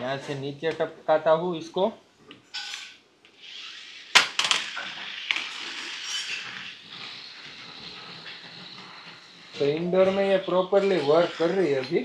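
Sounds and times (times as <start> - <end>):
toy car motors whirring: 2.5 - 12.0
toy car clattering on floor: 4.1 - 6.8.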